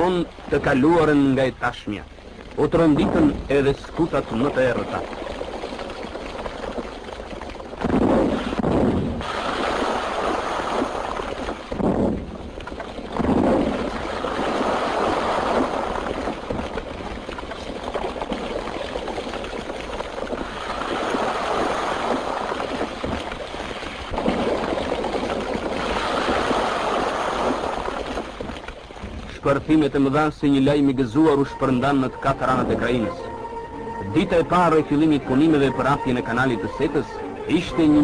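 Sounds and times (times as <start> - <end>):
rock blasting explosions: 7.8 - 12.5.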